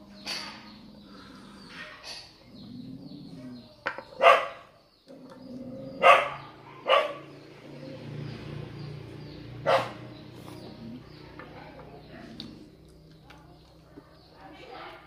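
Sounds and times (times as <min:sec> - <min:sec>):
dog barking: 0:04.2 - 0:04.7, 0:06.0 - 0:07.3, 0:09.6 - 0:10.1.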